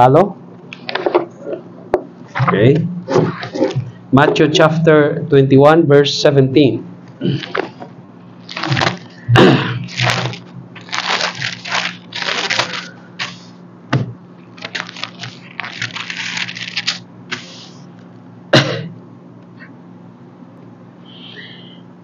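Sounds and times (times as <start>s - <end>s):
paper pages rustling: 7.4s - 9.2s, 9.9s - 13.6s, 14.5s - 17.8s.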